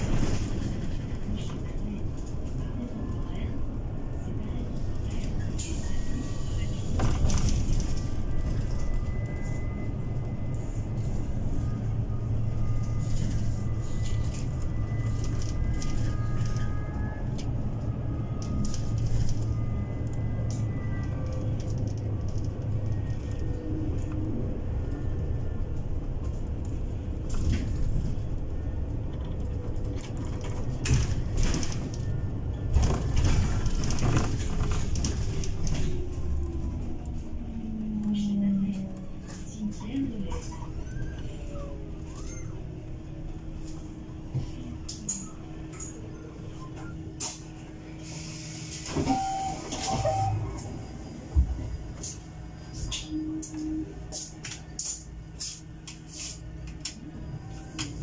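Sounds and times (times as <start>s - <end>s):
road rumble: 0.0s - 49.2s
bus hum: 0.0s - 58.0s
bus hiss: 48.0s - 49.0s
short beeps: 49.0s - 51.9s.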